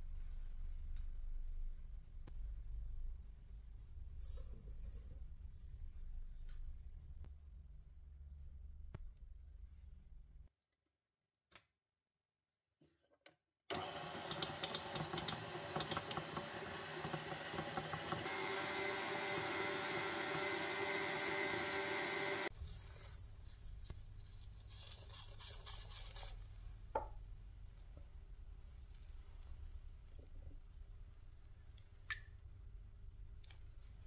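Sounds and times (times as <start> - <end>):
stand mixer motor running: 13.7 - 22.5.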